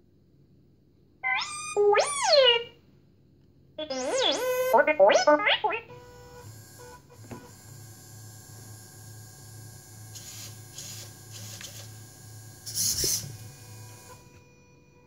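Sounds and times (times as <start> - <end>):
electric motors whirring: 5.9 - 14.6.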